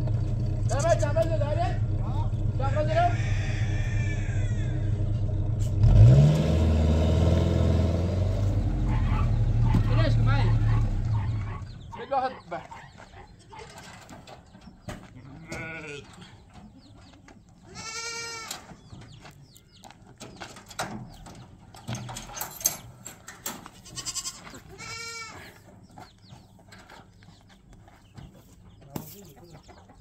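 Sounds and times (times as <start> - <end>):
goats bleating: 15.1 - 16.4, 17.7 - 18.8, 23.7 - 25.7.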